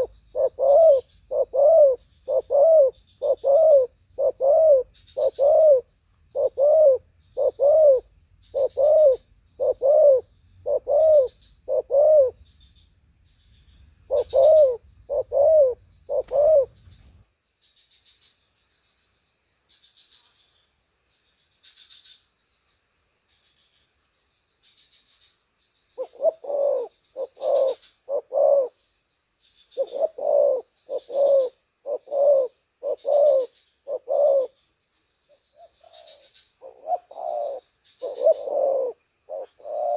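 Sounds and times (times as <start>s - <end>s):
dove cooing: 0.0s - 12.4s, 14.1s - 16.9s, 26.0s - 28.8s, 29.7s - 34.6s, 35.5s - 39.9s
faint high chirping: 0.0s - 39.9s.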